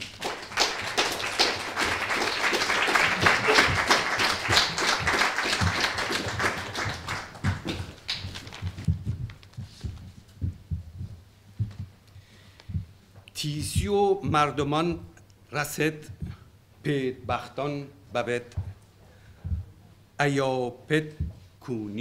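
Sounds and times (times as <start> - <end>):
audience applauding: 0.0 - 9.5
low knocks: 3.1 - 12.0.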